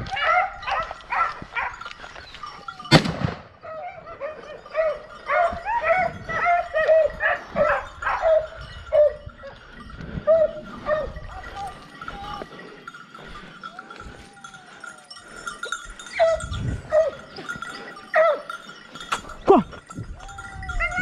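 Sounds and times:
hunting dogs baying: 0.0 - 21.0
gunshot echoing: 2.9 - 3.5.

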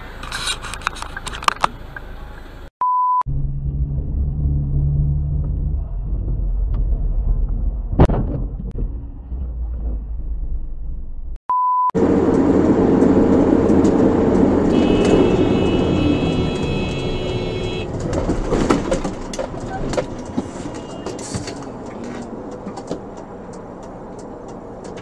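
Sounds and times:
road and wind noise: 0.0 - 2.7, 3.3 - 11.4, 12.0 - 25.0
engine and road rumble: 0.0 - 25.0
short steady beep: 2.8 - 3.2, 11.5 - 12.0.

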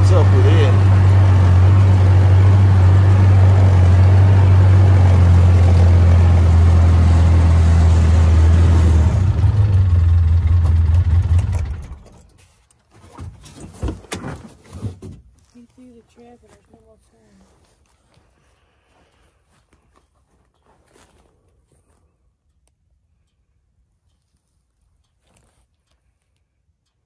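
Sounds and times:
vehicle engine running: 0.0 - 12.2.

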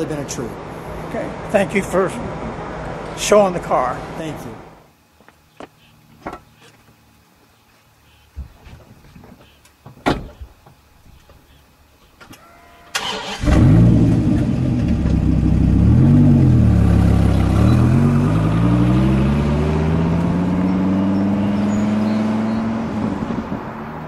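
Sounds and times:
car accelerating away: 13.0 - 24.0
car engine starting and revving: 13.0 - 24.0.

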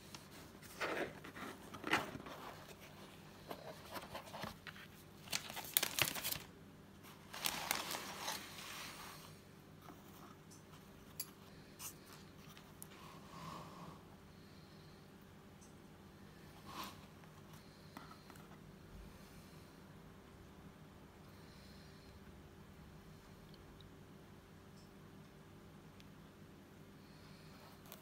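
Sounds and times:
cardboard box handling: 0.2 - 6.4
plastic wrap crinkling: 3.5 - 9.0.

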